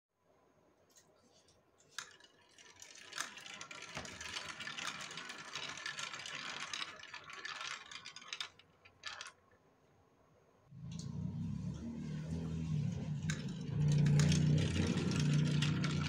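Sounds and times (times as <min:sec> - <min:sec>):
plastic balls rattling down marble run: 0:01.9 - 0:09.6, 0:12.3 - 0:16.0.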